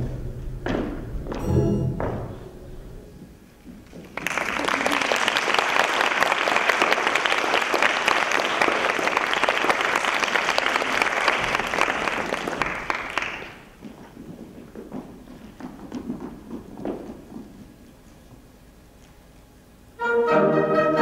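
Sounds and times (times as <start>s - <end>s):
audience applauding: 3.9s - 13.8s.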